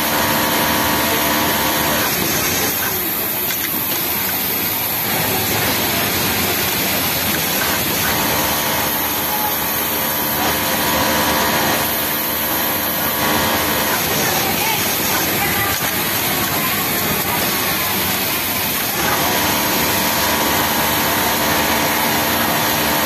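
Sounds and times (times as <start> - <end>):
din of other sewing machines: 0.0 - 23.0
sewing machine whine: 0.0 - 23.0.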